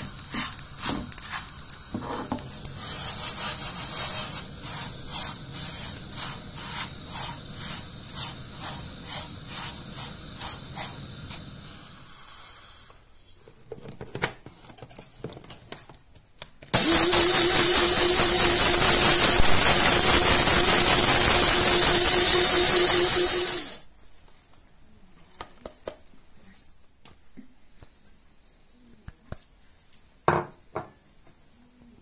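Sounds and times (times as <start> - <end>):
electric grinder motor whine: 16.8 - 23.8.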